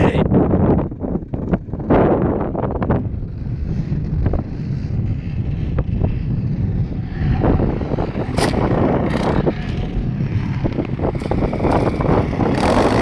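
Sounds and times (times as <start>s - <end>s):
dirt bike engine: 0.0s - 13.0s
wind buffeting microphone: 0.0s - 13.0s.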